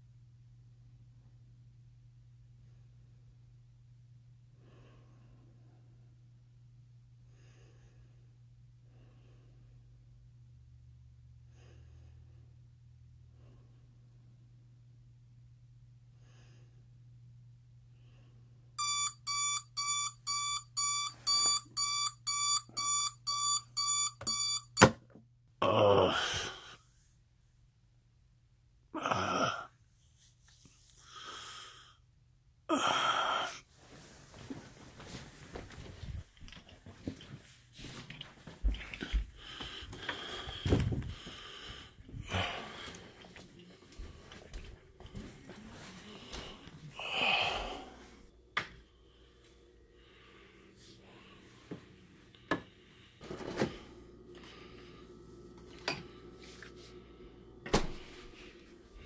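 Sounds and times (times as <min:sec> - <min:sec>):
person groaning: 0:25.6 - 0:26.8, 0:29.0 - 0:29.8, 0:32.7 - 0:33.6, 0:46.9 - 0:48.0
person breathing heavily and wheezing: 0:25.6 - 0:27.0, 0:29.0 - 0:29.8, 0:31.0 - 0:32.1, 0:32.7 - 0:33.8, 0:38.9 - 0:55.2
refrigerator hum: 0:31.1 - 0:59.0
refrigerator door opening: 0:57.6 - 0:58.2.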